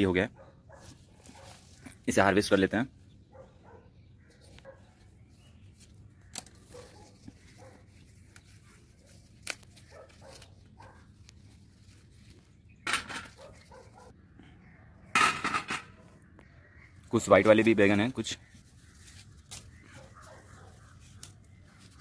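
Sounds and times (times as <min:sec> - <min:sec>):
rustling handling noises: 0:00.7 - 0:02.7, 0:04.2 - 0:14.1, 0:17.0 - 0:22.0
pruning shears snipping: 0:06.2 - 0:06.9, 0:09.2 - 0:10.6.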